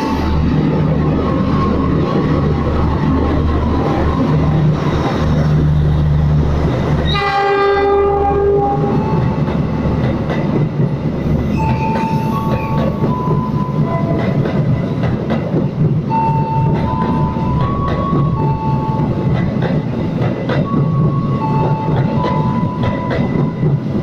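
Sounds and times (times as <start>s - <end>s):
train rumbling past: 0.0s - 24.0s
train horn: 7.1s - 9.3s.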